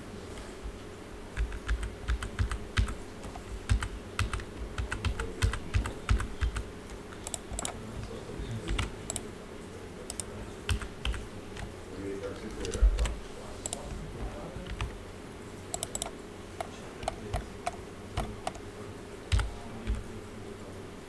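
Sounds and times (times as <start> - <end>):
steady low hum: 0.0 - 21.0
keyboard and mouse clicks: 1.4 - 7.8, 8.7 - 9.3, 10.1 - 11.7, 12.6 - 14.0, 15.7 - 18.6, 19.3 - 20.0.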